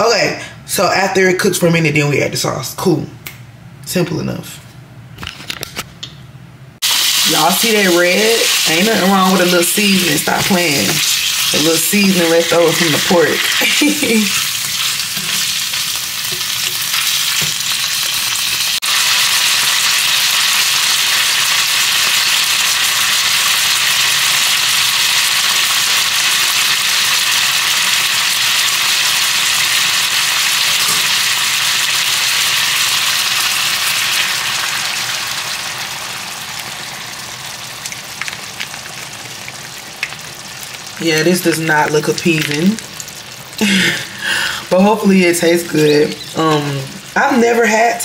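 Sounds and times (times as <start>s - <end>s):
chicken sizzling in a skillet: 6.8s - 44.2s
spatula stirring: 12.7s - 17.6s.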